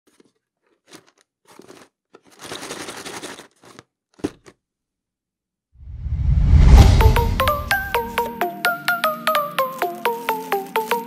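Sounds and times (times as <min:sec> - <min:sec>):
hands rustling on cardboard: 0:00.1 - 0:04.5
music: 0:06.8 - 0:11.0.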